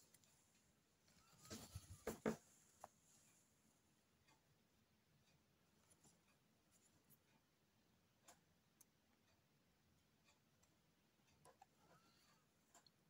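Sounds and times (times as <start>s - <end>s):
needle and thread through fabric: 0.0s - 3.5s.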